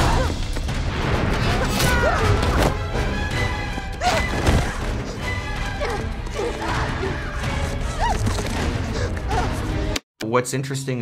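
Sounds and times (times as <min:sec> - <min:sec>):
movie music score: 0:00.0 - 0:10.0
fighters shouting: 0:05.8 - 0:08.2.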